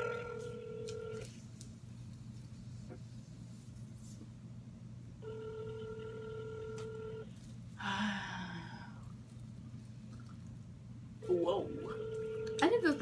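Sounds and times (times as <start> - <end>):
phone ringback tone: 0.0 - 1.2, 5.2 - 7.3, 11.6 - 13.0.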